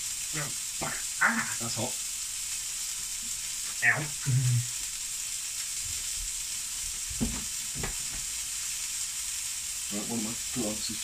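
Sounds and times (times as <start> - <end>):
meat sizzling in a frying pan: 0.0 - 11.0
wooden spoon knocking in saucepan: 7.2 - 8.2.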